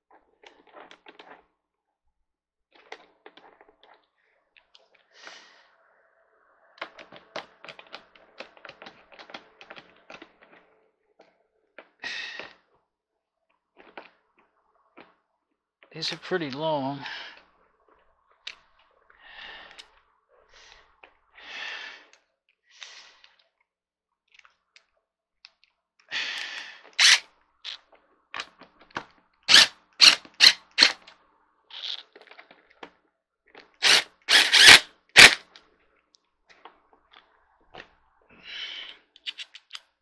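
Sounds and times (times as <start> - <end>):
power driver trigger bursts: 33.8 - 35.4.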